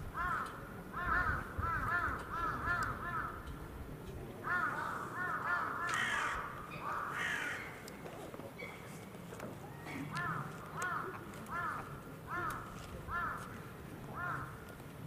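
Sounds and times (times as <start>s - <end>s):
crow cawing: 0.2s - 3.5s, 4.4s - 7.8s, 10.1s - 13.5s, 14.2s - 14.6s.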